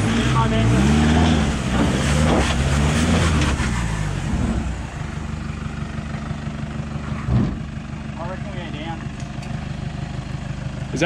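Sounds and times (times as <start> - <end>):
engine revving: 0.0 - 7.8
engine idling: 0.0 - 11.0.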